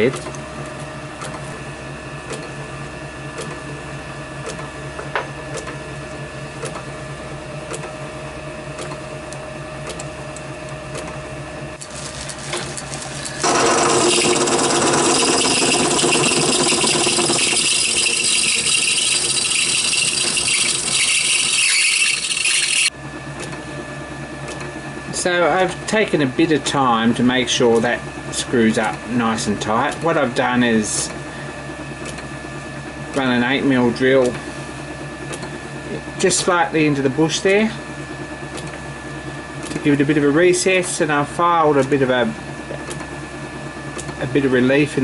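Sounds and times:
metal lathe running: 11.8 - 22.9.

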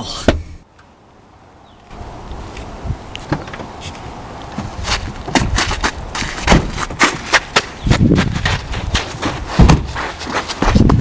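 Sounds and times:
footsteps running on snow: 4.8 - 11.0.

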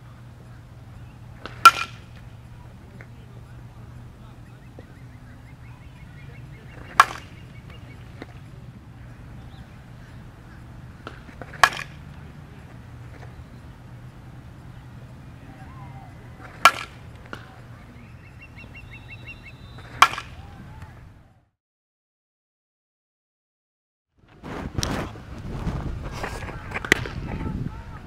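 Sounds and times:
bat hitting softball: 1.4 - 2.4, 6.6 - 8.5, 10.5 - 12.3, 16.4 - 17.6, 19.4 - 20.9, 26.8 - 27.2.

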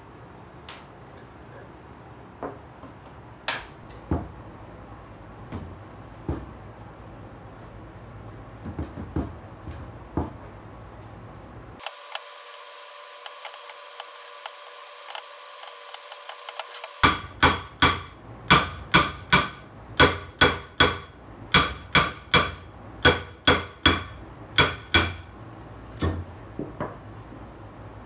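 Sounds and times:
hammer striking metal vise: 16.4 - 25.3.

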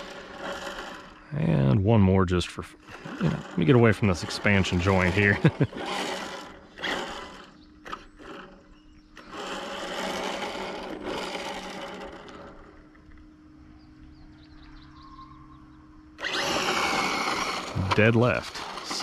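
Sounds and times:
electric motor whirring: 0.0 - 1.8, 2.7 - 13.9, 16.0 - 19.0.

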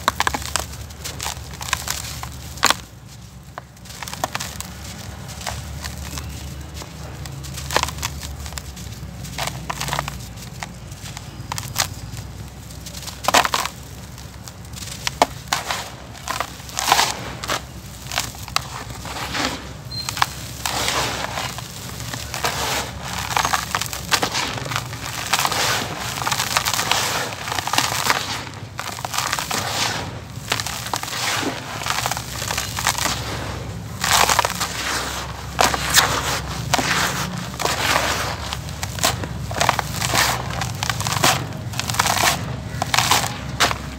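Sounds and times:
dry dirt crushed by hand: 0.0 - 43.9
hands digging in dry dirt: 0.0 - 43.9
grains falling into tub: 13.2 - 43.9.

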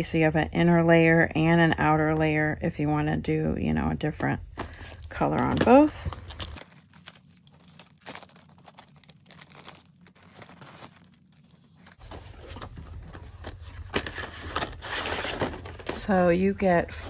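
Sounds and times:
card packages rustling and clicking: 4.5 - 16.3.

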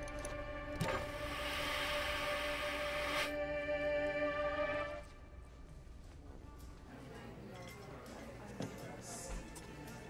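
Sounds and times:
murmur of voices: 6.4 - 10.0.

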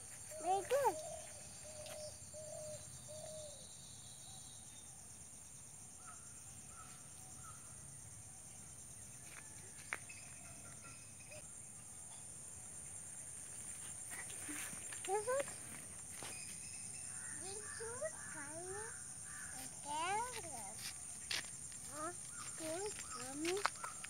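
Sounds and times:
insect chorus: 0.0 - 24.0
bird calls: 14.1 - 21.1, 21.9 - 24.0.

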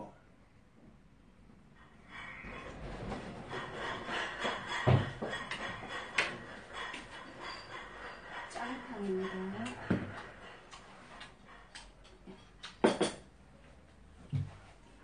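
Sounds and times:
wooden sliding door rasping: 2.2 - 11.4
knock: 4.5 - 6.4, 9.6 - 10.2.

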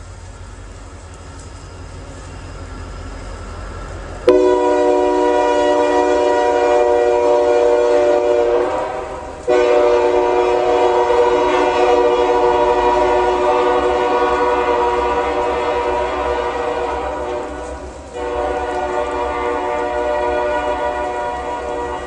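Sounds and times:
passing train rumble: 0.0 - 22.0
train horn blasts: 4.2 - 22.0.

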